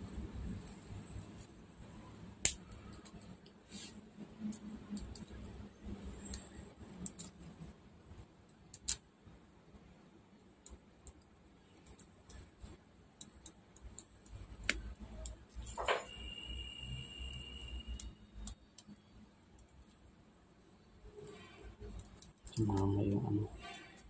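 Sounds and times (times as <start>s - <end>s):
short scrape: 3.7s - 4.0s.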